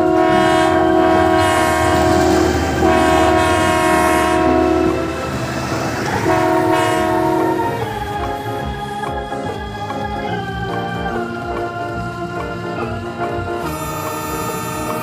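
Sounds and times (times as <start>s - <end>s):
low rumble: 0.0s - 14.5s
multi-tone train horn blasts: 0.0s - 15.0s.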